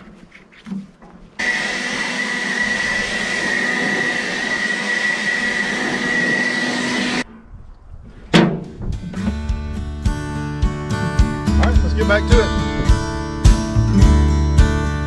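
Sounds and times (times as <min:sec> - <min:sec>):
handheld blower whining: 0:01.4 - 0:07.3.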